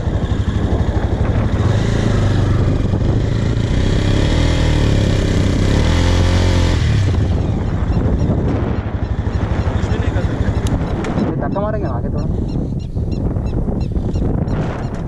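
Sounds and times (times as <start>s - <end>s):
motorcycle engine revving: 0.0s - 11.4s.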